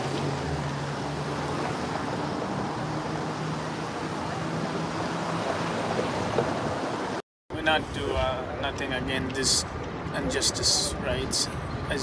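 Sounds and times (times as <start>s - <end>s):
city background noise: 0.0s - 12.0s.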